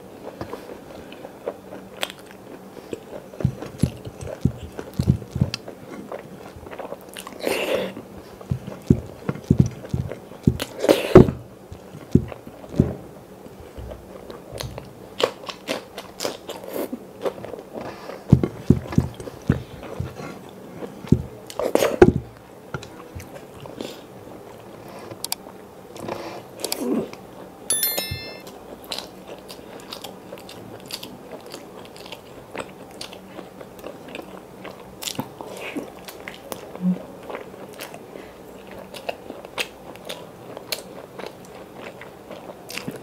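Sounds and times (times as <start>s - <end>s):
chewing with wet mouth clicks: 1.2s - 7.4s.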